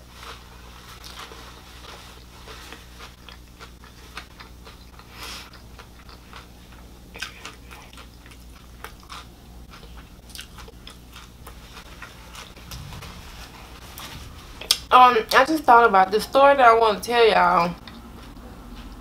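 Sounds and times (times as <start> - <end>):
chewing crunchy taco: 0.0 - 12.9.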